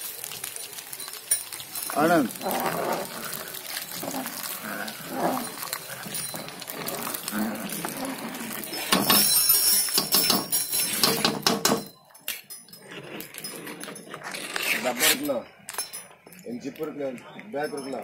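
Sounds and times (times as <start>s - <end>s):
metal clatter: 1.1s - 16.2s
metal ladle scraping a pot: 1.8s - 11.4s, 12.8s - 15.4s.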